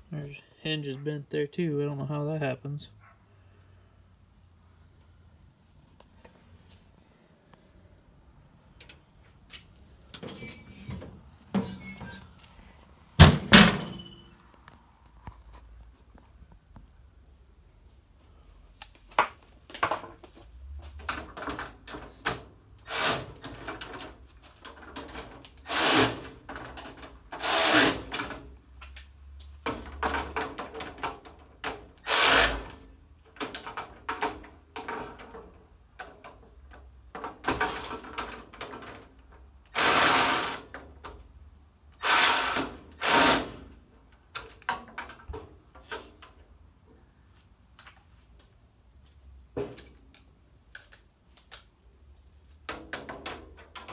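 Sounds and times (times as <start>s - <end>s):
cordless drill bursts: 25.6s - 26.2s, 32.0s - 32.7s, 39.8s - 40.6s, 42.0s - 43.5s.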